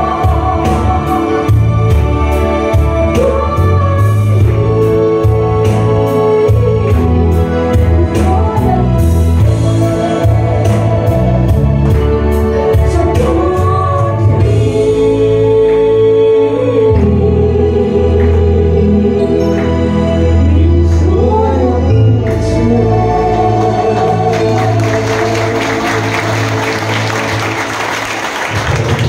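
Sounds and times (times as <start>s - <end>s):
accompaniment with steady beat: 0.0s - 20.8s
gospel song sung into microphone: 0.0s - 29.0s.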